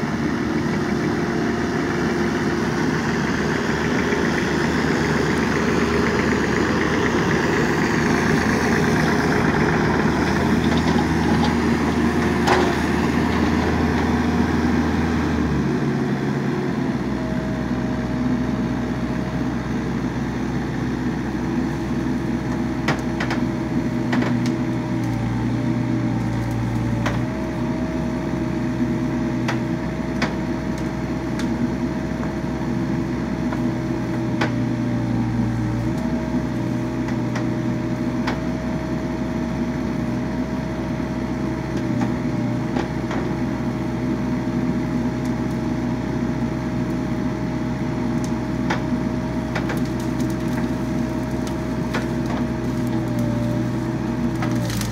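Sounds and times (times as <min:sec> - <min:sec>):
excavator diesel engine running: 0:00.0 - 0:54.9.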